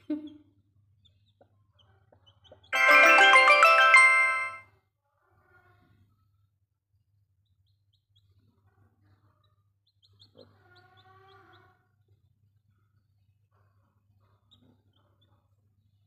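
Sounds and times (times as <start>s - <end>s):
music jingle: 2.8s - 4.6s.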